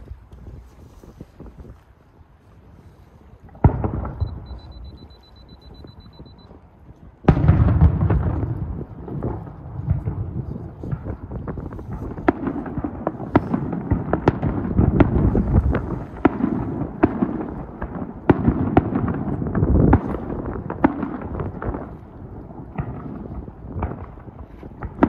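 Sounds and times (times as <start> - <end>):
fireworks cracks and bangs: 3.6 - 4.5, 7.3 - 25.0
low rumble of booms: 7.2 - 25.0.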